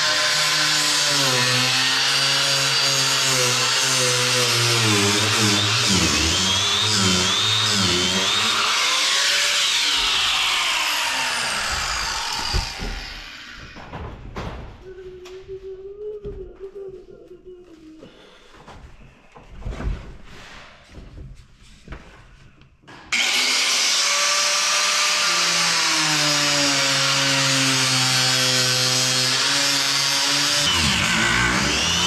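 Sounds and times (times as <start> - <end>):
die grinder cutting fiberglass: 0.0 - 13.8, 23.1 - 32.0
grinder spinning down: 0.0 - 13.8, 23.2 - 32.0.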